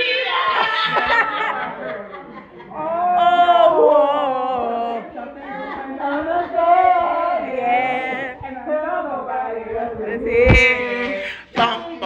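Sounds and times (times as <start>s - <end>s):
woman singing with vibrato: 3.1s - 5.2s, 6.0s - 12.0s.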